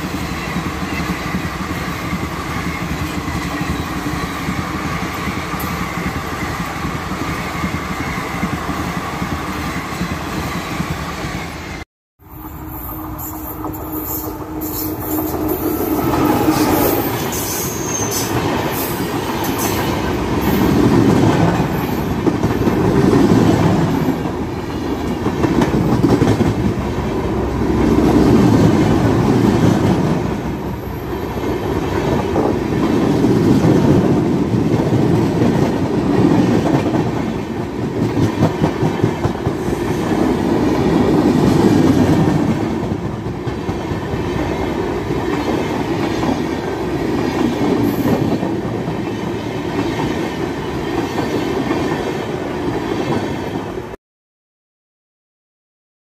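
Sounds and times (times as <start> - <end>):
train wheels clattering over rails: 12.9 - 30.6.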